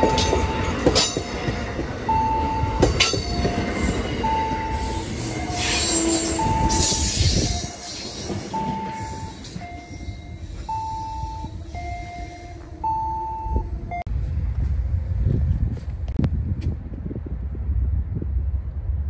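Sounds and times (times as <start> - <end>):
two-tone electronic warning signal: 0.0 - 1.0, 2.0 - 14.1
passenger train rumbling past: 0.0 - 19.0.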